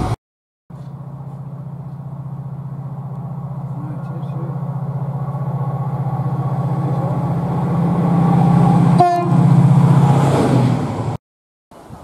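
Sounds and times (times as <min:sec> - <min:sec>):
diesel locomotive engine drone: 0:00.0 - 0:11.2
train horn toot: 0:08.9 - 0:09.7.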